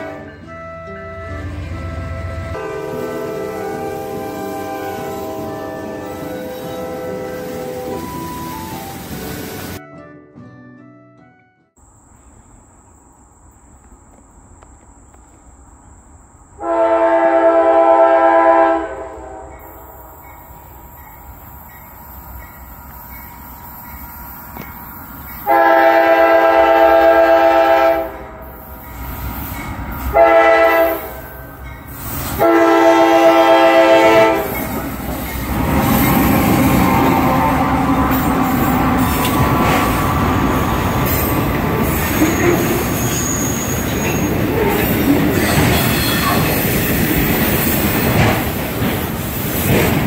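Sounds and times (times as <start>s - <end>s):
locomotive air horn blasts: 0.0s - 8.3s, 16.6s - 19.6s, 25.4s - 28.5s, 30.1s - 31.5s, 32.3s - 34.9s, 36.5s - 39.1s
locomotive engine and wheels passing: 0.0s - 9.8s, 19.2s - 50.0s.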